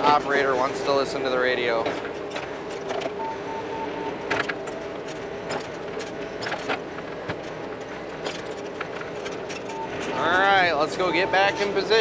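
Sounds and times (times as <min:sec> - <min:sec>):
diesel engine running: 0:00.0 - 0:12.0
short beeps: 0:03.2 - 0:04.2, 0:09.7 - 0:12.0.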